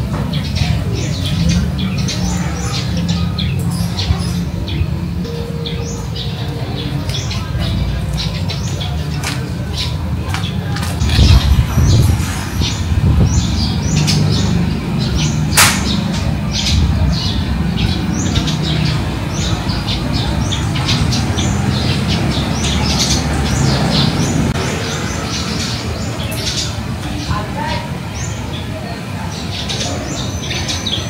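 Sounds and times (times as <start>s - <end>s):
small birds chirping: 0.0s - 31.0s
sharp click: 15.6s - 16.2s.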